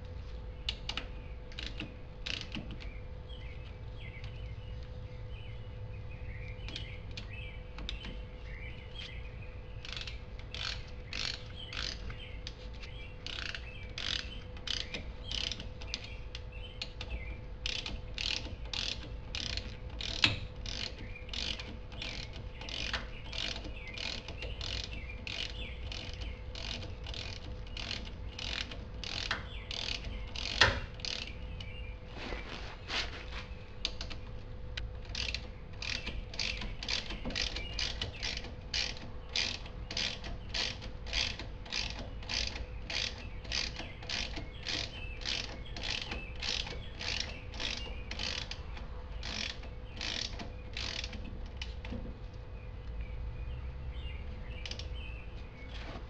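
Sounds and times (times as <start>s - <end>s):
faint steady hum: 0.0s - 56.0s
hand ratchet clicking: 0.7s - 2.9s, 9.8s - 12.6s, 13.2s - 31.4s, 35.0s - 52.0s.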